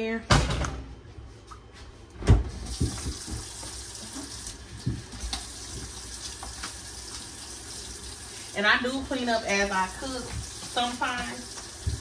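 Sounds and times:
water running into a metal sink: 2.6 - 12.0.

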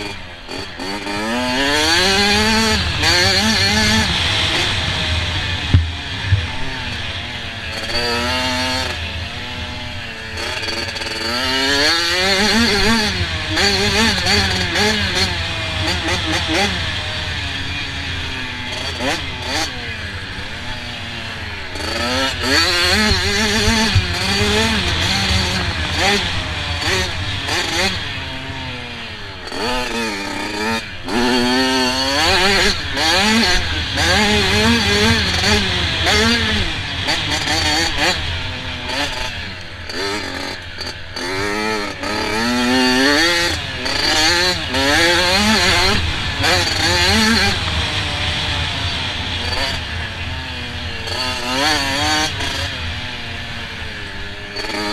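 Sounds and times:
motocross bike engine revving: 0.0 - 54.9
sharp thumps: 4.1 - 8.0.

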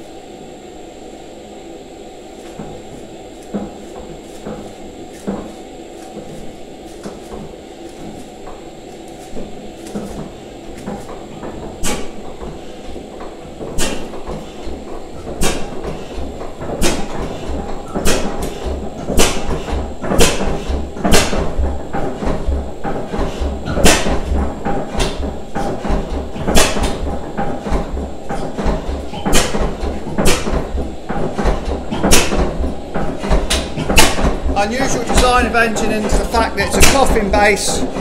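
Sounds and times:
engine mechanical clatter: 2.4 - 38.0
engine firing with sharp bangs: 16.6 - 37.6.

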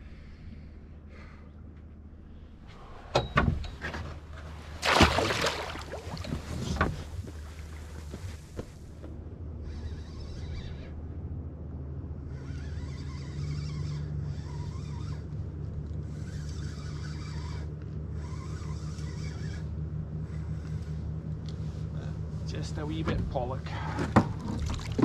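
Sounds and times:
boat engine idling: 0.0 - 25.0
faint squeaks: 9.5 - 11.4, 12.2 - 21.1.

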